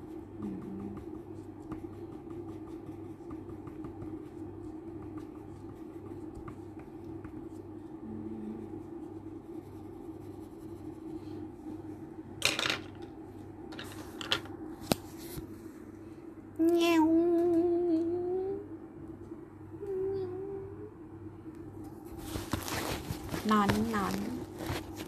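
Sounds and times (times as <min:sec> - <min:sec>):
steady low hum: 0:00.0 - 0:25.0
person humming: 0:00.4 - 0:01.0, 0:08.0 - 0:08.7, 0:16.6 - 0:18.7, 0:19.8 - 0:21.0
coloured pencils clattering: 0:13.7 - 0:14.5.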